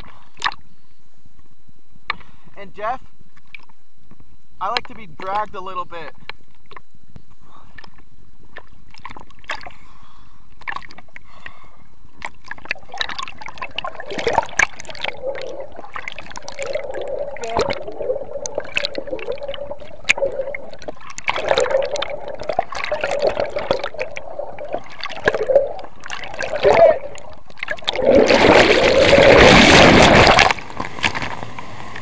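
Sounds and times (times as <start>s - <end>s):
sharp water splashes: 12.2s - 31.3s
underwater rushing and gurgling: 12.3s - 32.0s.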